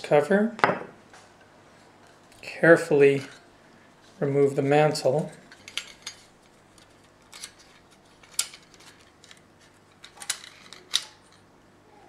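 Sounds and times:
metal lantern parts clicking: 5.5s - 11.4s.

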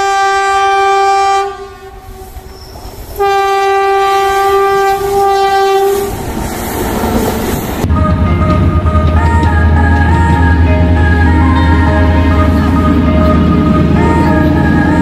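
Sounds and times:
train horn blasts: 0.0s - 2.4s, 3.2s - 6.2s
train coaches rumbling on track: 0.0s - 15.0s.

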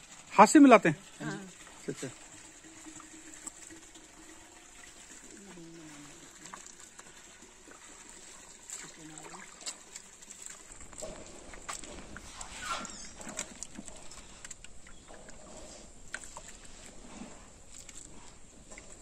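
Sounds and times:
hand sloshing in slurry: 5.0s - 19.0s.

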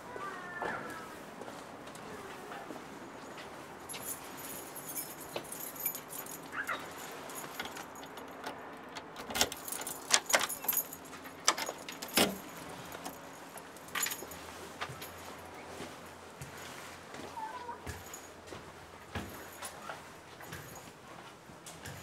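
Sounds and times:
keys jangling: 3.8s - 15.4s, 19.2s - 20.9s
key working a door lock: 4.6s - 14.3s.

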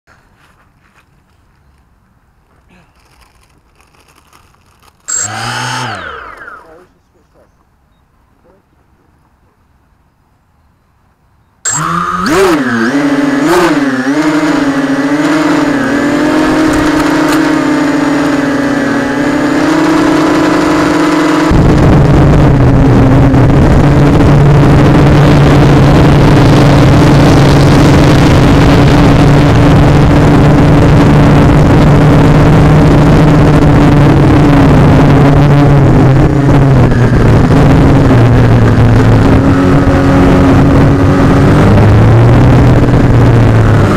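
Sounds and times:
drone motors whining: 3.0s - 7.2s, 11.7s - 43.9s.

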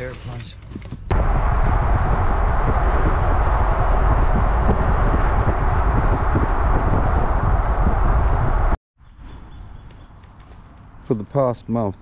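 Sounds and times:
wind buffeting microphone: 1.1s - 8.8s
road and tyre noise: 1.1s - 11.6s.

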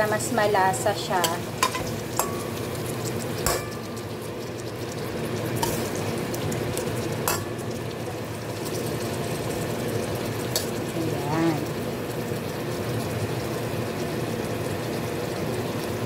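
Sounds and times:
vegetables sizzling in oil: 0.0s - 16.0s
spoon clinking against pan: 1.2s - 4.1s, 7.3s - 7.6s
metal spoon stirring: 1.2s - 6.0s, 7.2s - 7.9s.

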